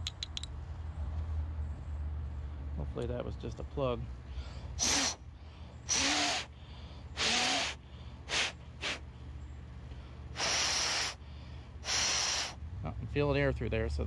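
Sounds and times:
hissing puffs of breath: 0:04.3 - 0:09.3, 0:09.9 - 0:12.6.

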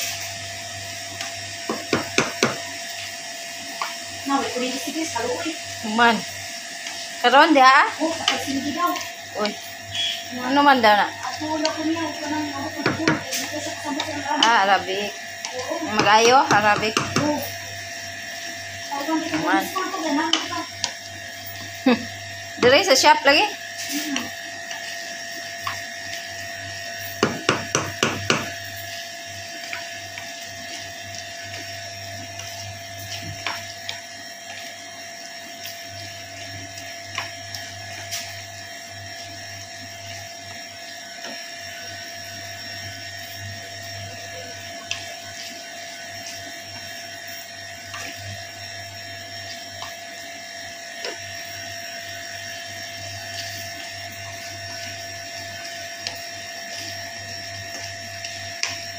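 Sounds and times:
steady machine hum: 0:00.0 - 0:58.9
spatula knocking against pan: 0:01.7 - 0:02.6, 0:27.2 - 0:28.5.

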